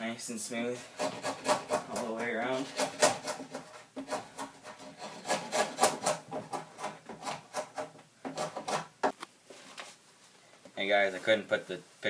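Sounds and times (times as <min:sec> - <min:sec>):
drawknife scraping wood: 0:00.8 - 0:08.9.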